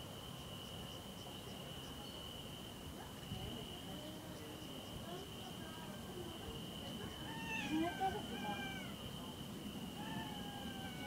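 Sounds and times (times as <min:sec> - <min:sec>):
crickets trilling: 0:00.0 - 0:11.0
faint high chirp: 0:00.4 - 0:02.4.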